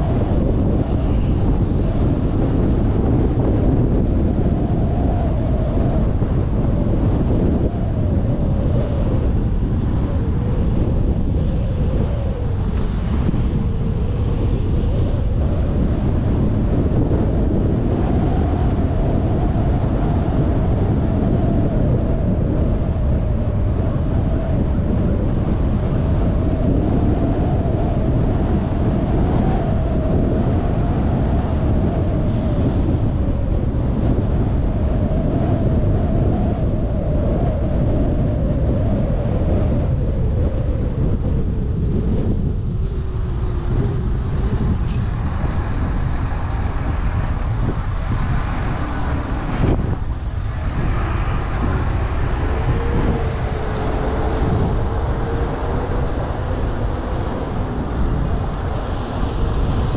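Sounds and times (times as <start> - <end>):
road and tyre noise: 0.0 - 59.9
wind noise: 0.0 - 59.9
faint wavering hum: 29.7 - 59.9.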